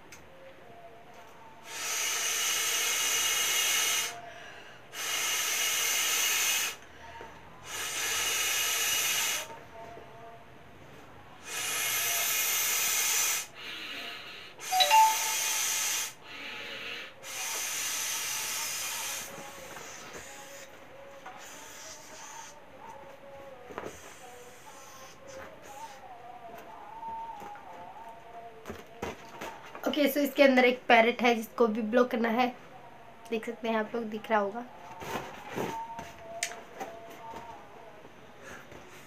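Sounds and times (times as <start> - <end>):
breath blown into beach ball valve: 1.6 - 4.2, 4.9 - 6.8.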